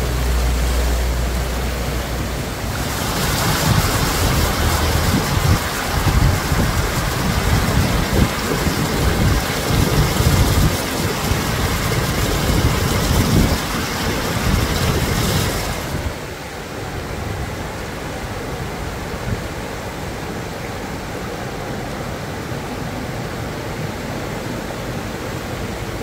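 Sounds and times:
truck engine rumble: 0.0s - 16.3s
floodwater running: 0.0s - 26.0s
water rushing from wheels: 0.0s - 26.0s.

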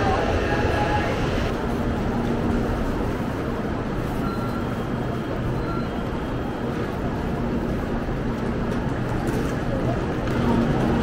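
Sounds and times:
train running rumble: 0.0s - 11.0s
faint short beeps: 4.2s - 4.8s, 5.5s - 6.0s.

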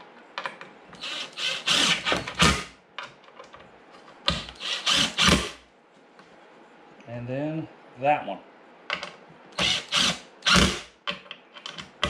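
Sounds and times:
cordless drill driving screws: 1.0s - 2.7s, 4.3s - 5.6s, 9.6s - 10.9s.

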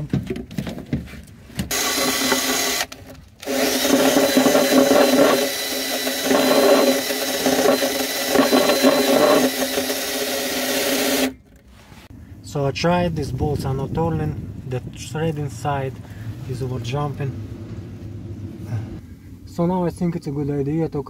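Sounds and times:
power drill spinning: 1.7s - 11.4s.

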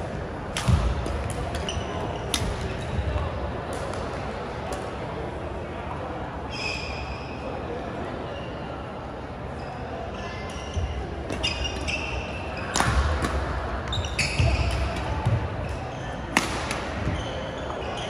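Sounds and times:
rackets striking shuttlecock: 0.5s - 2.8s, 12.7s - 17.2s.

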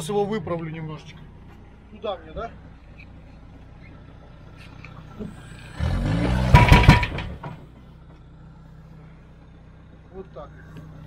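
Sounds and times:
diesel engine idling and revving: 0.0s - 11.0s.

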